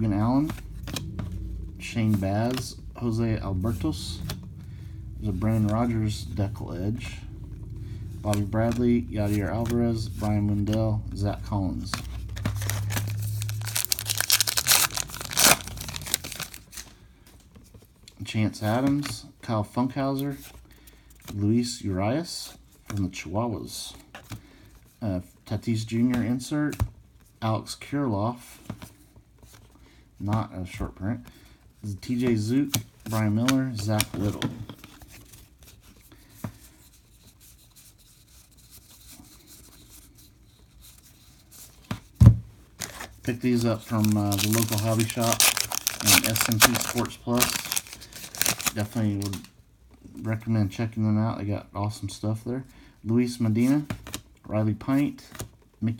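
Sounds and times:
cards rustling and rubbing: 8.0 - 17.8, 32.1 - 42.2, 42.8 - 49.5
wrapper tearing and crinkling: 12.1 - 16.9, 42.8 - 49.5.

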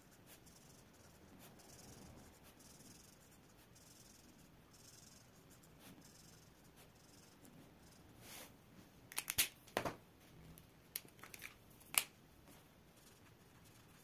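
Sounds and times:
marker scratching on paper: 0.0 - 8.5, 12.5 - 14.0.

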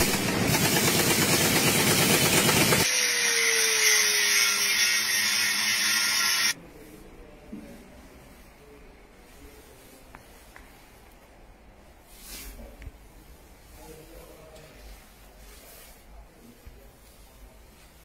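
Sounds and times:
angle grinder whining: 2.2 - 6.6.

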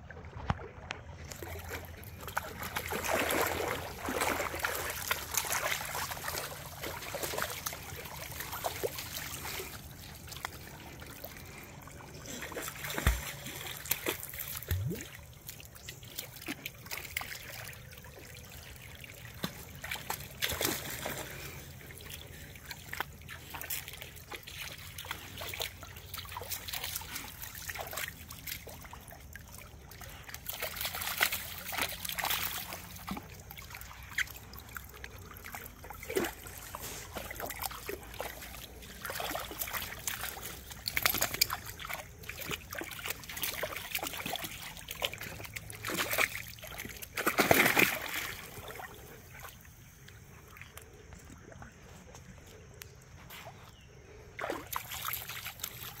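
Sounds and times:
dogs splashing in water: 0.3 - 51.1, 54.0 - 56.0.

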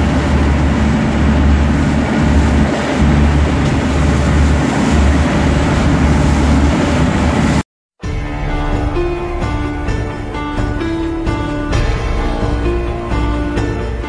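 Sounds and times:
strong wind buffeting microphone: 0.0 - 7.6
heavy low rumble: 0.0 - 14.0
rushing water and spray: 0.0 - 14.0.

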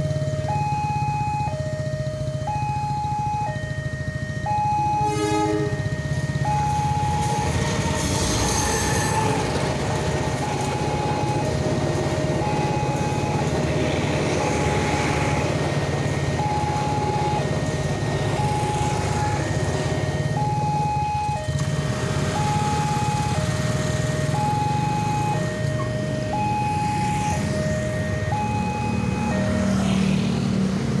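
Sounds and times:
motorcycle engines: 0.0 - 31.0
two-tone level crossing siren: 0.0 - 31.0
low rumble of passing train: 5.0 - 18.4.

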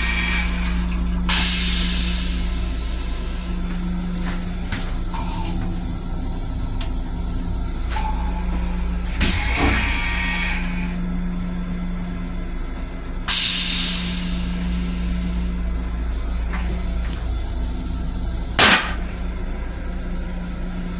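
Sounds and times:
railcar low hum: 0.0 - 20.9
loud hiss of air: 1.3 - 7.9, 13.3 - 20.3.

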